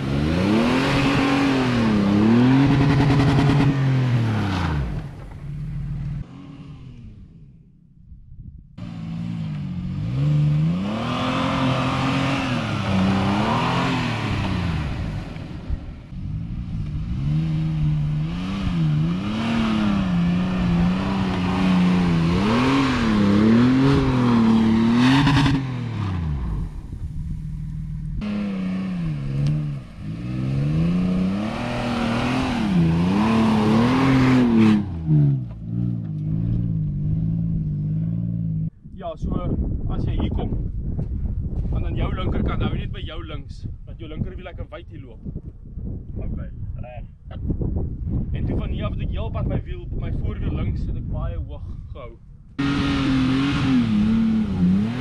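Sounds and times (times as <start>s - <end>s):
car engine revving: 0.0s - 7.7s, 8.8s - 38.7s, 52.6s - 55.0s.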